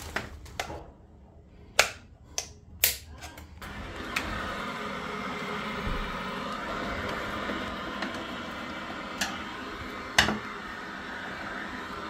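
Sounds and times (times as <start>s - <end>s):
boiler pump whirring: 3.6s - 12.0s.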